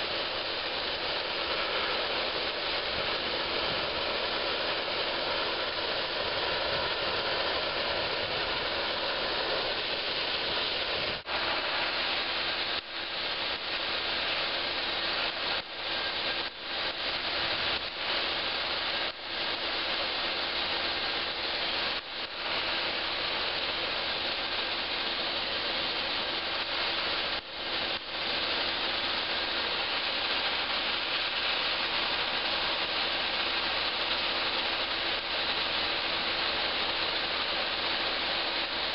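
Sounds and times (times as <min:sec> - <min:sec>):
sandblaster hissing on metal: 0:00.0 - 0:19.1.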